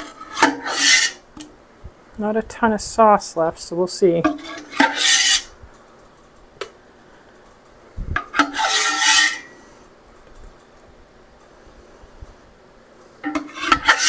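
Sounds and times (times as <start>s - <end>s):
wooden spoon scraping metal pot: 0.0s - 1.2s, 4.2s - 5.5s, 8.2s - 9.6s, 13.2s - 14.0s.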